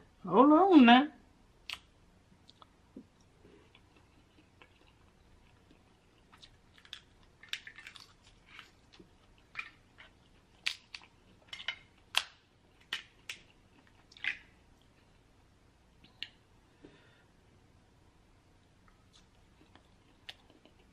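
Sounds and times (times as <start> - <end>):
crab shells cracking: 6.4 - 13.5, 14.1 - 14.5.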